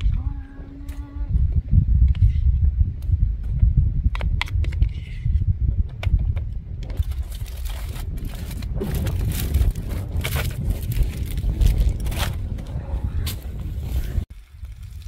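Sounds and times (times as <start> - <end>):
wind rumble on microphone: 0.0 - 15.0
aluminium foil crinkling: 7.0 - 12.4.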